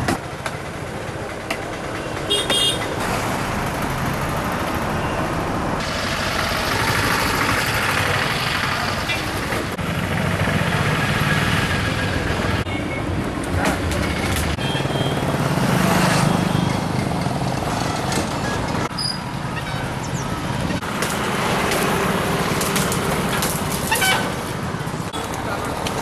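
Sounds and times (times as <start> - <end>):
traffic passing: 0.0 - 26.0.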